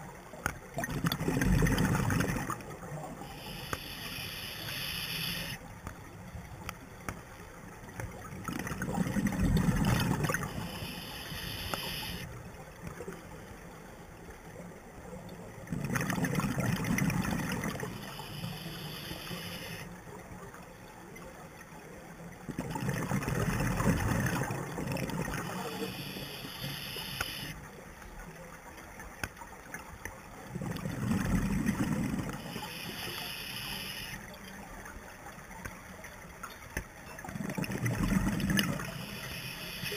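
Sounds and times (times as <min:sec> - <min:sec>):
exhaled bubbles underwater: 0:00.7 - 0:05.6, 0:08.0 - 0:12.2, 0:15.5 - 0:19.0, 0:22.4 - 0:26.8, 0:30.4 - 0:33.2, 0:37.1 - 0:39.9
high hiss of regulator: 0:03.3 - 0:05.6, 0:10.5 - 0:12.3, 0:18.0 - 0:19.9, 0:25.5 - 0:27.6, 0:32.4 - 0:34.2, 0:38.9 - 0:39.9.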